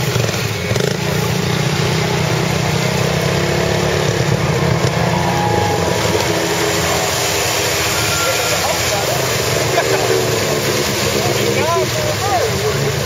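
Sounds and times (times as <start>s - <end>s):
vehicle engine running: 0.0s - 13.0s
water churning: 0.0s - 13.0s.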